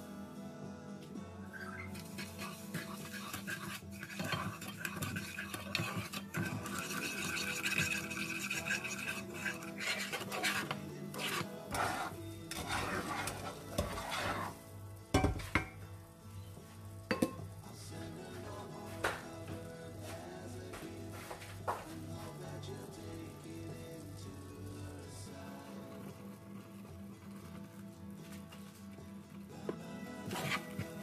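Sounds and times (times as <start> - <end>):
butter and sugar sizzling: 1.5 - 31.0
wooden spatula scraping saucepan: 1.6 - 14.7, 30.1 - 31.0.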